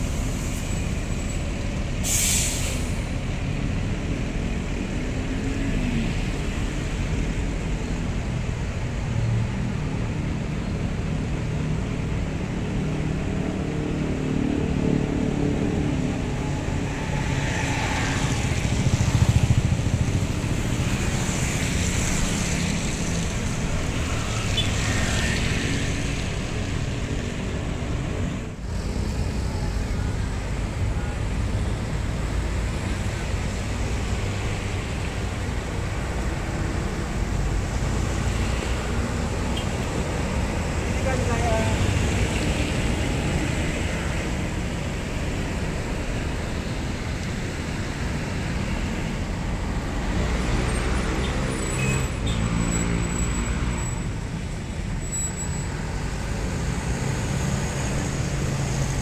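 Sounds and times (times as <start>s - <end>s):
bus diesel engine running: 0.0s - 24.3s, 25.8s - 50.5s
tyres on wet road: 0.0s - 59.0s
air brakes hiss: 2.0s - 3.1s.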